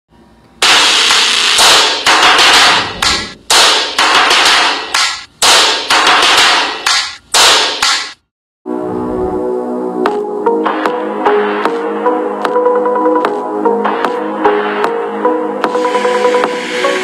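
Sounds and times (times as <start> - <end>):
harsh noise hits: 0.6 - 7.9.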